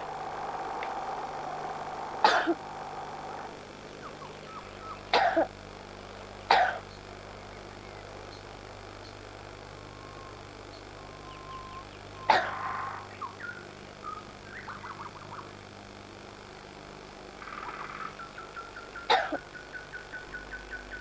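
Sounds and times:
child coughing: 2.2s - 2.6s, 5.1s - 5.5s, 6.5s - 6.8s, 12.3s - 12.6s, 19.1s - 19.4s.

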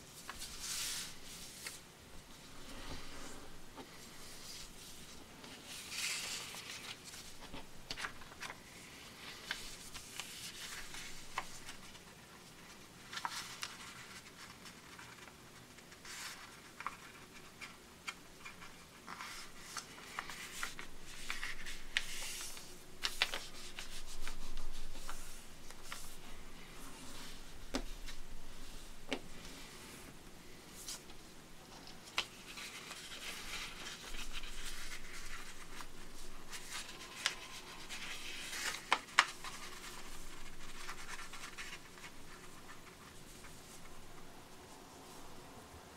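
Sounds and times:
paper folding and crinkling: 0.0s - 1.8s, 2.4s - 29.8s, 30.8s - 44.3s
fingers swishing along paper folds: 0.2s - 1.8s, 18.4s - 29.7s, 31.9s - 44.1s.

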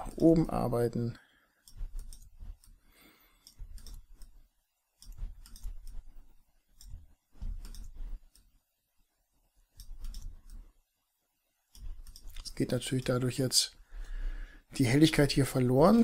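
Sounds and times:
computer mouse clicking: 1.6s - 8.6s, 9.7s - 10.8s, 11.7s - 13.1s.

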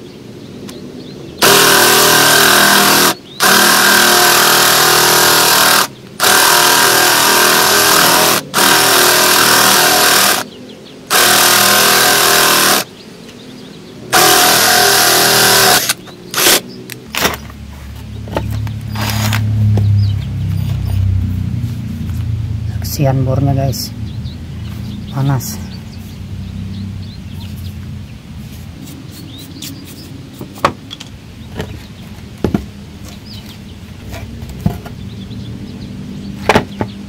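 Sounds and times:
cordless drill whining into wood: 1.4s - 10.5s, 11.1s - 12.9s, 14.1s - 16.6s, 18.9s - 19.4s.

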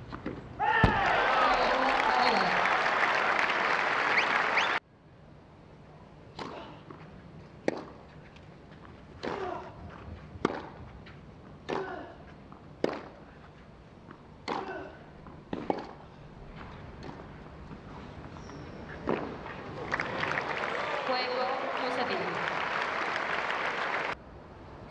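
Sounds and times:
tennis ball racket strikes: 7.6s - 8.0s, 10.4s - 10.8s, 12.8s - 13.2s, 14.4s - 14.9s, 15.5s - 16.0s.

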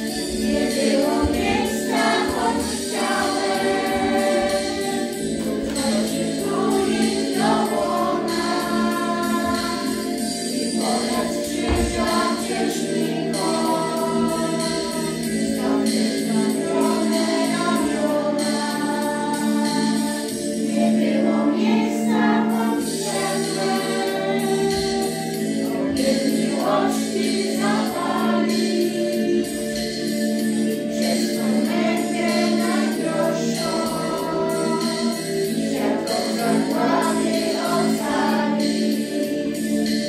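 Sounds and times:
choir singing: 0.0s - 40.0s
low accompaniment: 10.8s - 14.8s.

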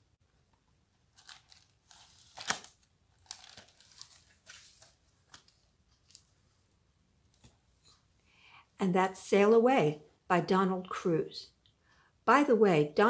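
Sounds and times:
book pages turning: 1.0s - 6.5s
plastic cover crinkling: 1.1s - 6.3s.

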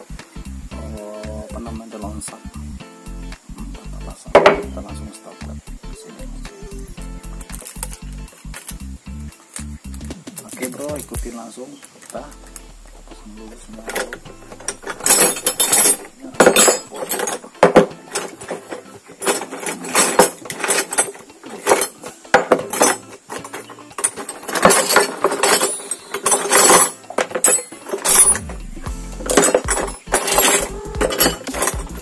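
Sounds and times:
metal tools clinking on engine: 13.6s - 28.5s, 29.3s - 32.0s.

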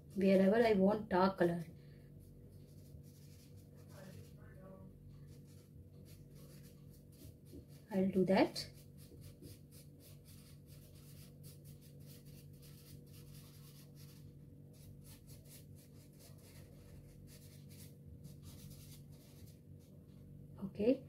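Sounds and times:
pastel scratching on paper: 2.5s - 4.4s, 5.1s - 20.0s.

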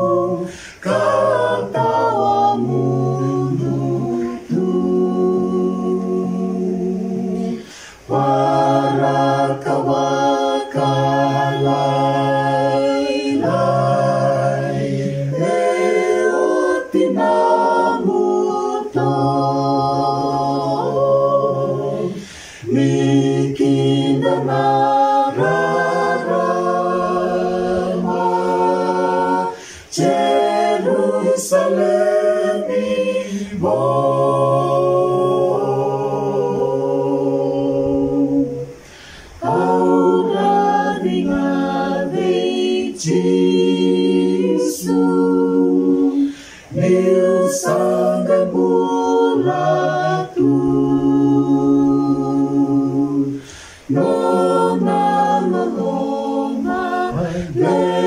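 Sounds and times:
small group singing a hymn: 0.0s - 58.0s.

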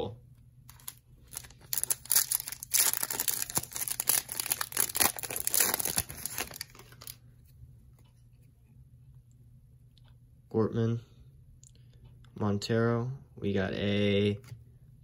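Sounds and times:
foil wrapper crinkling and tearing: 0.7s - 7.2s.

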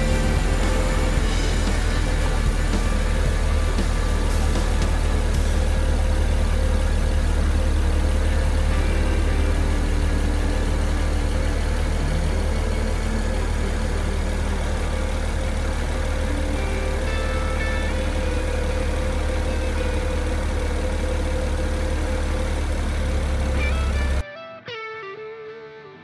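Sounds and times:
car engine idling: 0.0s - 24.2s.

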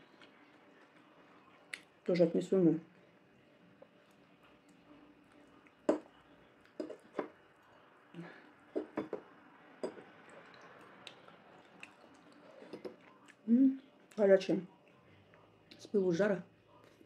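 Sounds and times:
dishes and utensils clinking: 6.8s - 7.4s, 8.8s - 9.2s, 9.8s - 10.6s.

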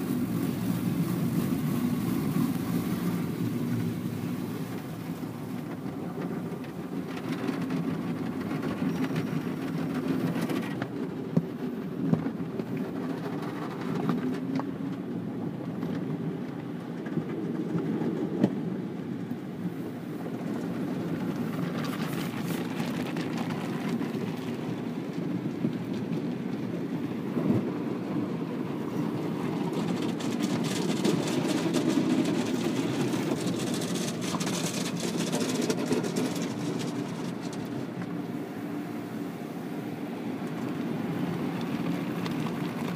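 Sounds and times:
car wash machinery rumbling: 0.0s - 42.9s.

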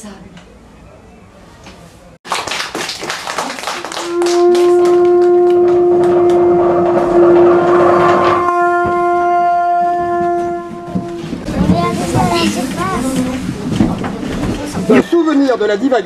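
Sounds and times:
hand clapping: 2.2s - 6.4s
horn long steady note: 3.8s - 11.5s.

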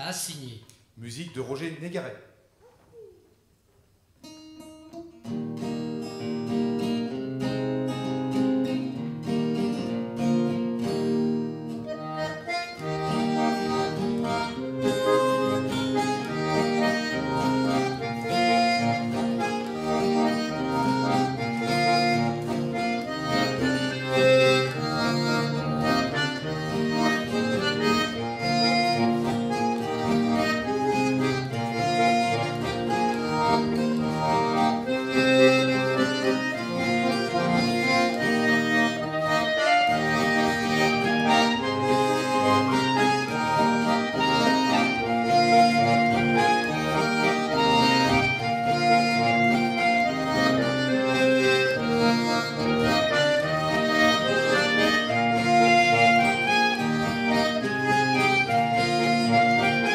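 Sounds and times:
strummed acoustic guitar: 4.3s - 59.9s
button accordion playing dance tune: 11.7s - 59.9s.

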